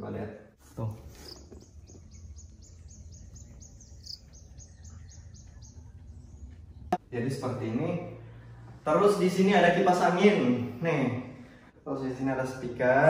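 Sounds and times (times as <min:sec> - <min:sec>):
small bird chirping: 0:01.1 - 0:07.1
low steady hum: 0:01.7 - 0:09.0.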